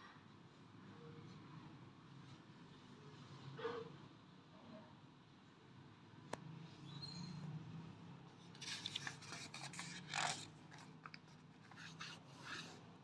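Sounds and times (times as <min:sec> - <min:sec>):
book pages turning: 0:08.6 - 0:12.8
paper rubbing: 0:08.6 - 0:12.9.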